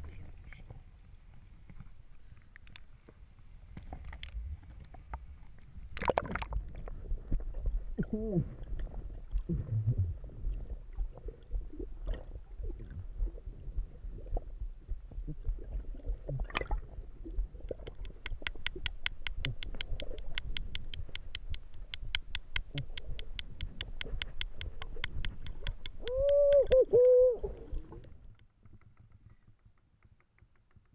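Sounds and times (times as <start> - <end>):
underwater rumbling and gurgling: 0.0 - 28.8
rapid regular sharp clicks: 17.7 - 26.8, 28.0 - 30.9.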